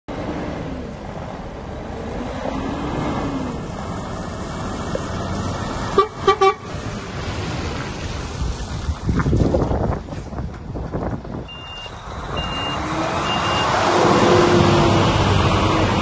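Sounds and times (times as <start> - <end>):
diesel truck engine running: 0.1 - 16.0
vehicle horn toots: 6.0 - 6.7.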